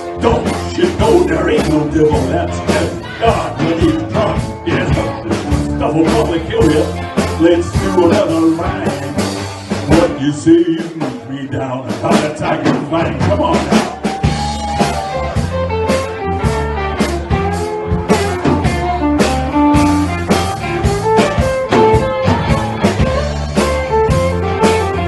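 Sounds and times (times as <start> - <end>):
man singing: 0.0 - 14.1
bass guitar: 0.0 - 25.0
drum kit: 0.0 - 25.0
electric guitar: 0.0 - 25.0.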